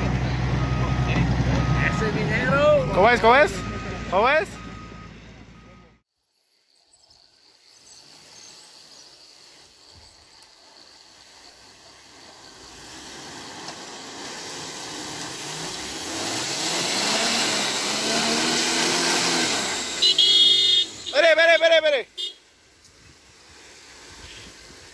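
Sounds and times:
truck engine revving: 0.0 - 6.0, 11.2 - 21.2.

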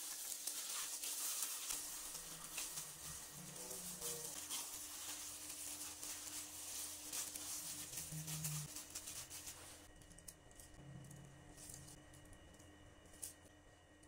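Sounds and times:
plastic glove crinkling: 0.0 - 10.6
dough squishing: 0.0 - 13.3.

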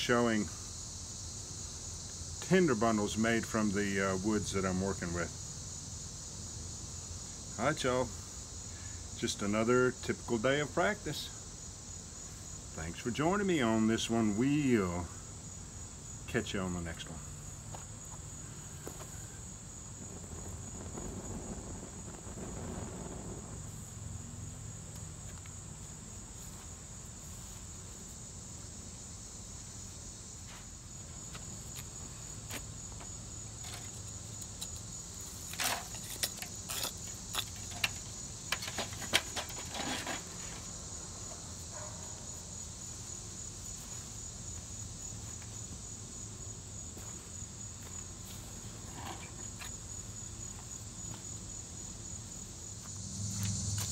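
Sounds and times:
insects chirring: 0.0 - 53.9
stick scraping wooden stump: 35.4 - 40.7.

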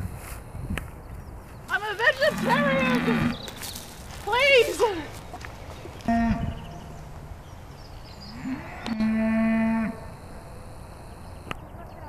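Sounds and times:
cattle mooing: 2.2 - 3.4, 6.0 - 6.8, 8.3 - 10.8.

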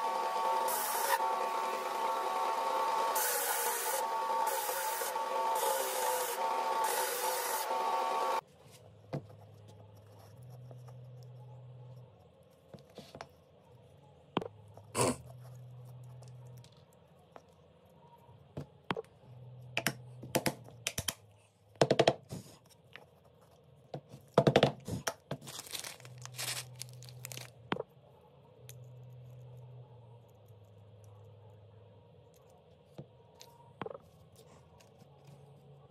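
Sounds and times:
belt sander: 0.0 - 8.4.

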